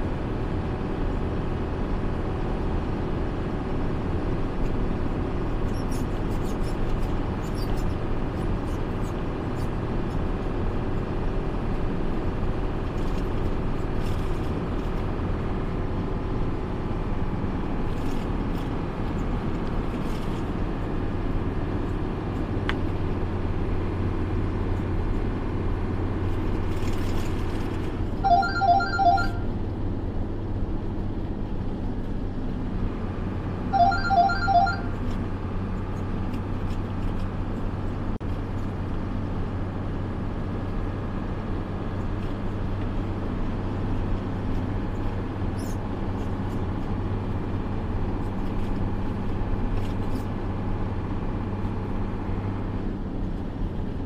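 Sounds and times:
road noise: 0.0s - 54.0s
truck engine drone: 0.0s - 54.0s
short electronic beeps: 28.2s - 29.6s, 33.7s - 35.1s.

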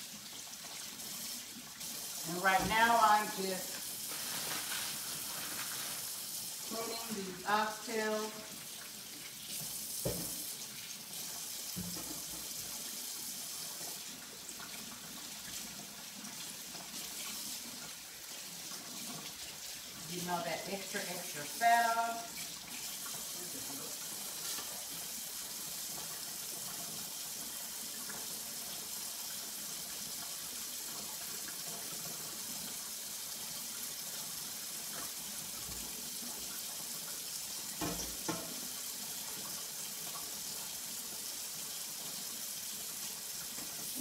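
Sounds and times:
tap running into sink: 9.5s - 10.6s, 11.6s - 12.9s, 37.7s - 38.8s.

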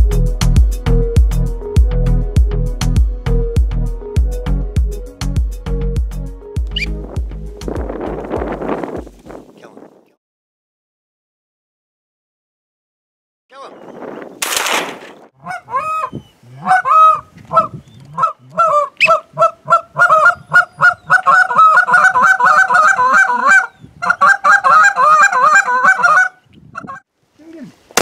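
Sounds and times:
goose honking: 15.4s - 27.0s.

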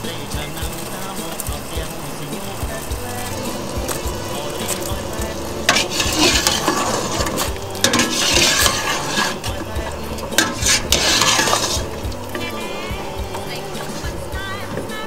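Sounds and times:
ladle scraping a steel pot: 3.2s - 15.0s.

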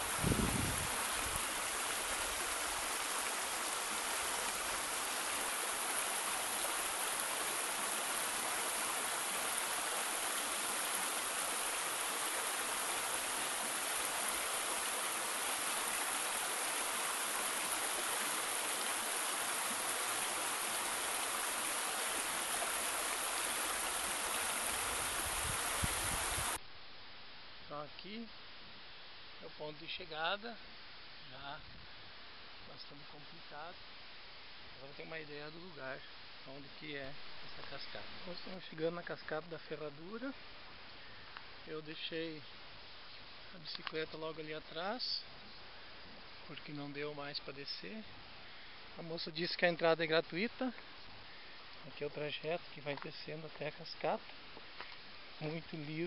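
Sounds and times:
waterfall rushing: 0.0s - 26.6s.

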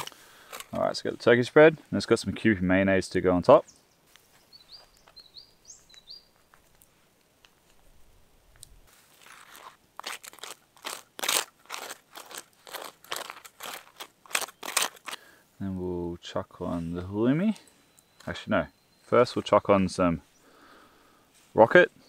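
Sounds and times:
knife scraping toasted bread: 9.2s - 15.2s.

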